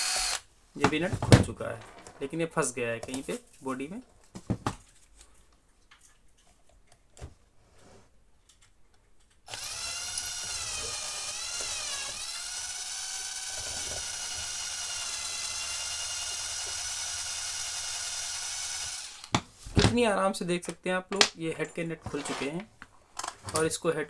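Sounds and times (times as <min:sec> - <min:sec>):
cordless drill whining: 0:00.0 - 0:00.5, 0:09.5 - 0:19.4
screws and parts clicking: 0:08.5 - 0:15.6.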